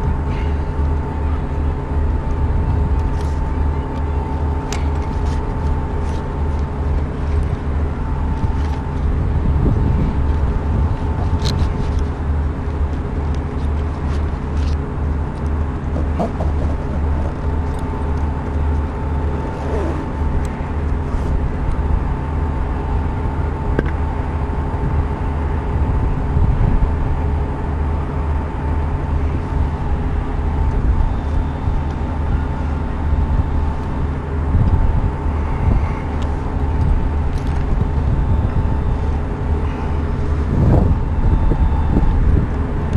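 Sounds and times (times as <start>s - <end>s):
machinery hum with tones: 0.0s - 42.9s
wind buffeting microphone: 0.0s - 42.9s.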